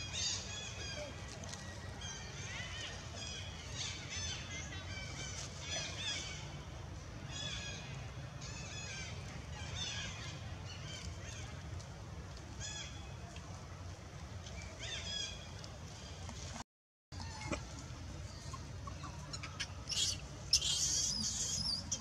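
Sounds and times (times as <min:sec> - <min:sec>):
baby monkey squealing: 0:19.3 - 0:22.0.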